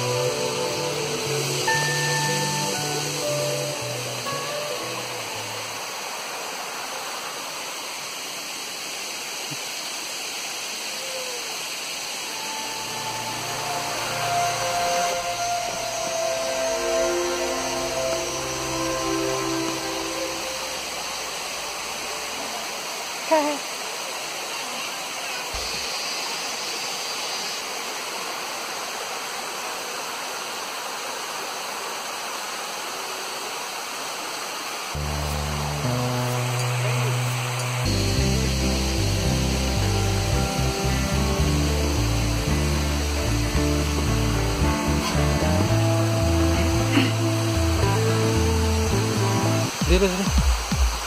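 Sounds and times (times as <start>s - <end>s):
background music with held notes: 0.0s - 6.0s, 12.3s - 22.6s, 35.0s - 50.1s
waterfall splashing over rocks: 0.0s - 51.0s
water splashing over rocks: 48.9s - 51.0s.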